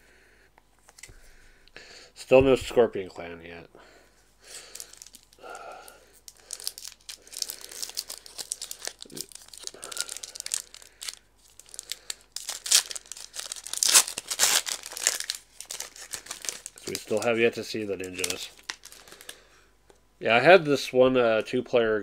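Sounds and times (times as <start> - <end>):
foil wrapper tearing and crinkling: 4.6 - 19.4.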